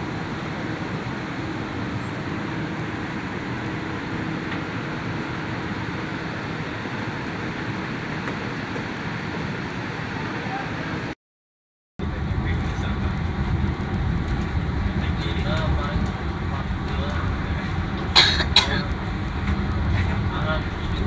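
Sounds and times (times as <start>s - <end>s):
diesel train idling hum and hiss: 0.0s - 11.1s, 12.0s - 21.0s.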